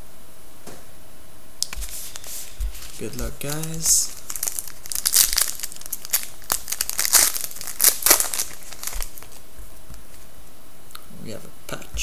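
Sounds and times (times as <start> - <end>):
foil wrapper tearing and crinkling: 1.6 - 9.4.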